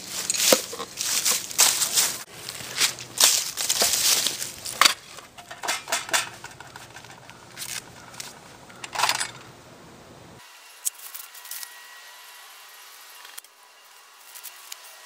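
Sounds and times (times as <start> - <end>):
metal wrenches clinking in a tin: 0.1 - 1.8, 3.3 - 9.4.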